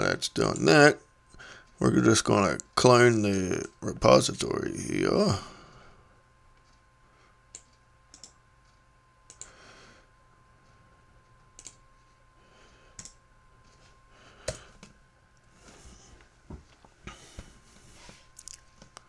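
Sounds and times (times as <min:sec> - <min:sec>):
computer mouse and keyboard clicks: 0:07.5 - 0:08.4, 0:11.6 - 0:11.8.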